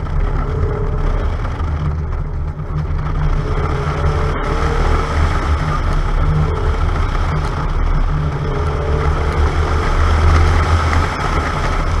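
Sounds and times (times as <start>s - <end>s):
car engine and road noise: 0.0s - 12.0s
wind buffeting microphone: 0.0s - 12.0s.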